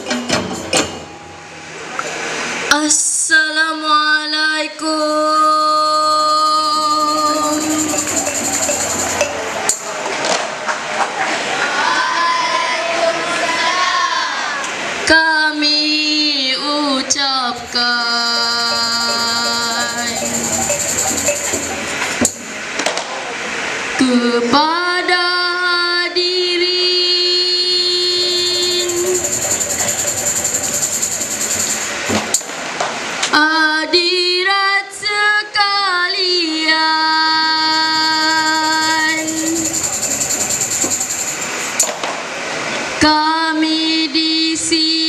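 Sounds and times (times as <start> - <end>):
child singing into microphone: 2.7 - 8.3, 11.6 - 20.4, 24.0 - 29.3, 33.3 - 39.8, 43.0 - 45.0.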